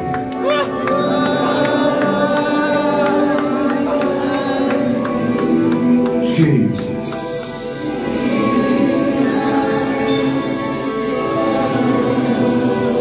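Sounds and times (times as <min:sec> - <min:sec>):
voices singing: 0:00.5 - 0:06.4, 0:07.5 - 0:13.0.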